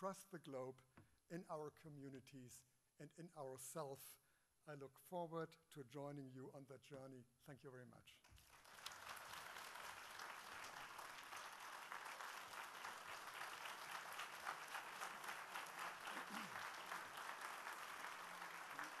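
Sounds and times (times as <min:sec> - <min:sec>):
audience applauding: 0:08.4 - 0:19.0.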